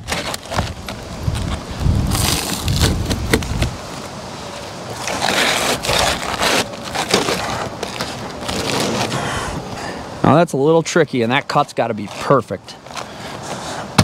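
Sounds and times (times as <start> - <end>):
knife scraping through shingle: 0.0 - 3.8, 4.9 - 9.4.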